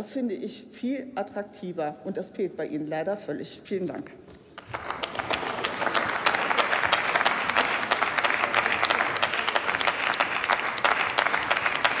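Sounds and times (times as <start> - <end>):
audience applauding: 4.6 - 12.0.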